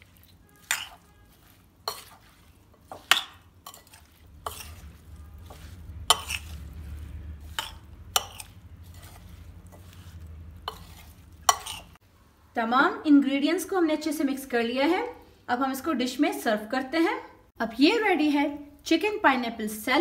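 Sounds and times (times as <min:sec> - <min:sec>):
spoon stirring salad: 0:00.0 - 0:12.0.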